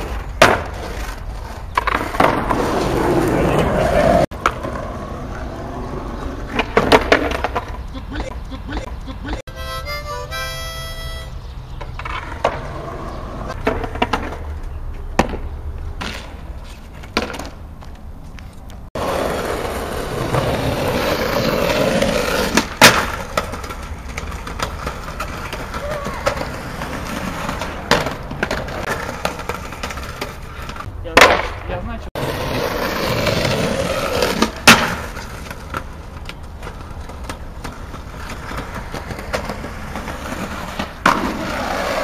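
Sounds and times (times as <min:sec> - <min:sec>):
board hitting concrete ledge: 0:00.0 - 0:01.1, 0:01.8 - 0:03.3, 0:06.5 - 0:07.8, 0:21.4 - 0:30.4, 0:31.1 - 0:31.7, 0:32.3 - 0:35.9
skateboard wheels rolling on asphalt: 0:00.0 - 0:08.4, 0:10.4 - 0:42.0
skateboard clacks: 0:00.0 - 0:09.0, 0:11.8 - 0:16.4, 0:18.7 - 0:42.0
musical notes: 0:08.5 - 0:11.4.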